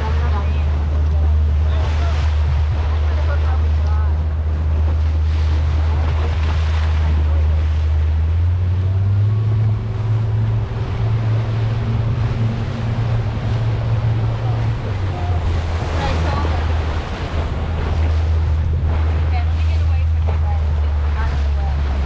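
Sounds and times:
powerboat engine running: 0:00.0 - 0:22.0
water along hull: 0:00.0 - 0:22.0
wind on microphone: 0:00.0 - 0:22.0.

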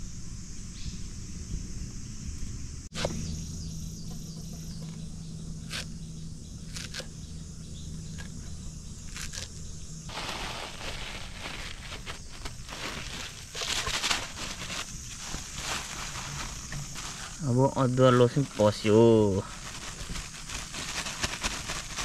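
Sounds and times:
insects droning: 0:00.0 - 0:22.0
rustling noise: 0:10.1 - 0:22.0.

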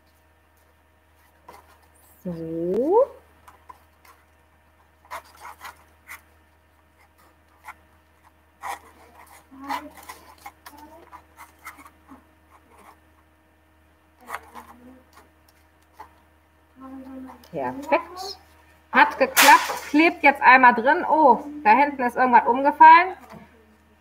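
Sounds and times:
paper and tape rustling: 0:03.4 - 0:13.1, 0:14.2 - 0:16.2.

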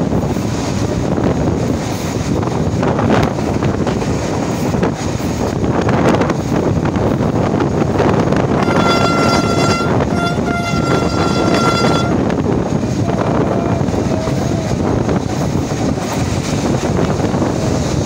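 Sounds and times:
train running on track: 0:00.0 - 0:18.0
wind on microphone: 0:00.0 - 0:18.0
locomotive horn blasts: 0:08.5 - 0:12.4.

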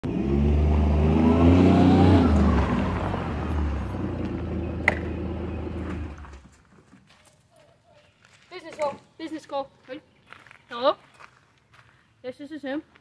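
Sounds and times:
utility vehicle engine: 0:00.0 - 0:06.6.

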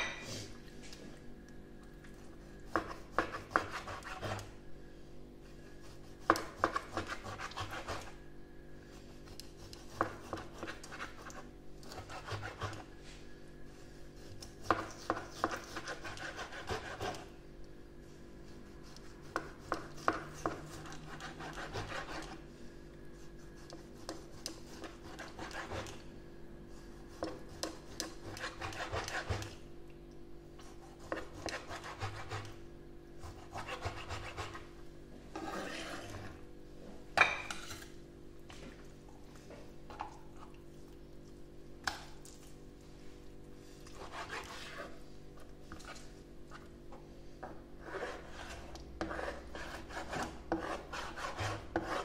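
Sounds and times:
knife slicing raw meat on board: 0:02.7 - 0:04.5, 0:14.2 - 0:17.3, 0:30.7 - 0:32.5.

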